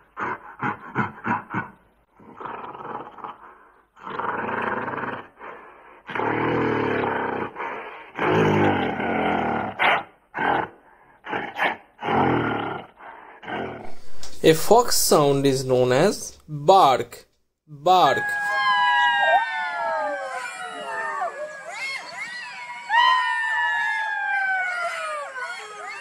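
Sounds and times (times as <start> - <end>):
gorilla calls: 18.0 - 26.0.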